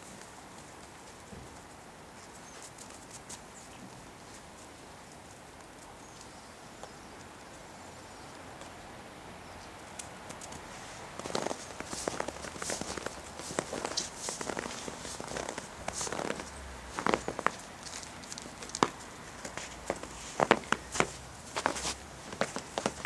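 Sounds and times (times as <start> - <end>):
faint outdoor hiss: 0.0 - 23.0
footsteps on thin snow: 10.6 - 23.0.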